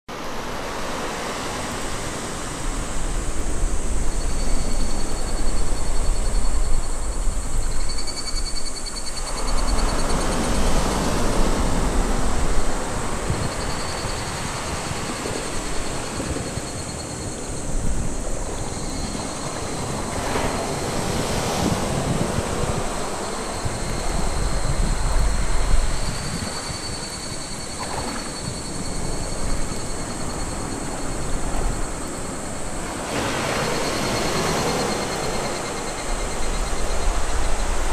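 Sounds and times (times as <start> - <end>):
small waves breaking on beach: 0.1 - 6.3, 9.2 - 37.9
wind rumble on microphone: 0.1 - 37.9
faint high-pitched whistle: 4.0 - 11.1, 23.2 - 32.4.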